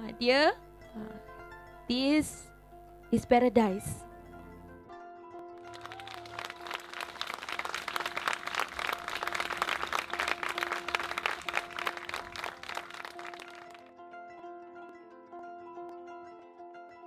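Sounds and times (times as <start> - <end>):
audience applauding: 5.6 - 13.9
steady held musical tone: 5.6 - 13.9.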